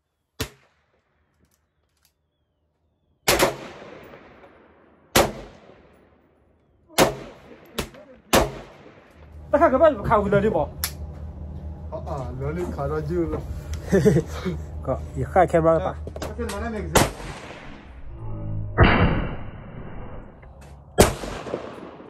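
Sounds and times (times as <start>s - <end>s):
sharp crack: 0.4s - 1.0s, 3.3s - 6.1s, 6.9s - 9.2s, 16.2s - 18.0s, 21.0s - 22.0s
gunshots echoing: 3.2s - 6.2s, 6.9s - 9.2s, 16.9s - 18.0s, 21.0s - 22.0s.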